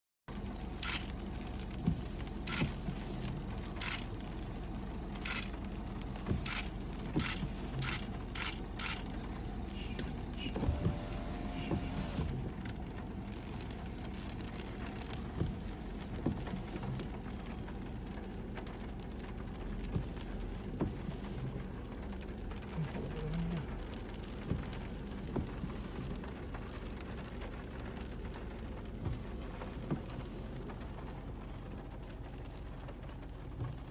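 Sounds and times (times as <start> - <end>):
vehicle rumble on wet road: 0.3 - 33.9.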